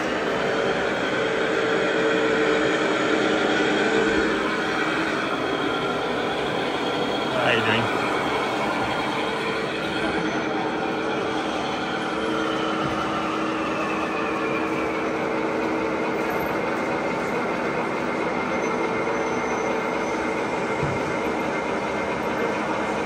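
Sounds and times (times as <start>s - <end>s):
model train rolling hum: 0.0s - 23.0s.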